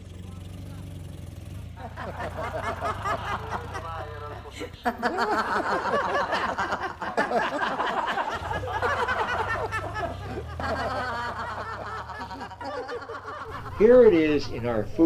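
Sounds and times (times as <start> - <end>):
people chuckling and snickering: 1.6 - 15.0.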